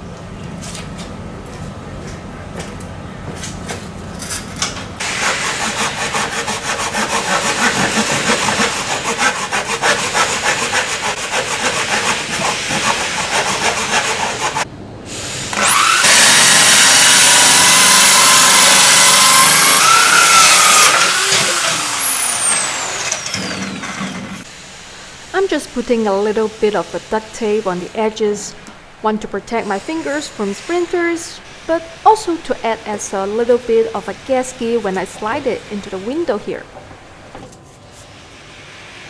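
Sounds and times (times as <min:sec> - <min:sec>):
handsaw cutting wood: 0:05.0 - 0:14.7, 0:15.6 - 0:24.4
drill with hole saw whining: 0:05.0 - 0:25.3.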